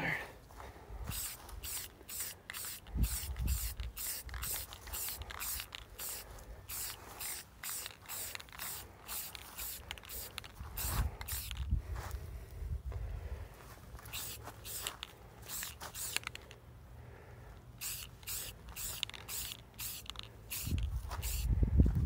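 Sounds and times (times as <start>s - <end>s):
spray can hissing: 1.1s - 11.7s, 14.1s - 16.5s, 17.8s - 21.5s.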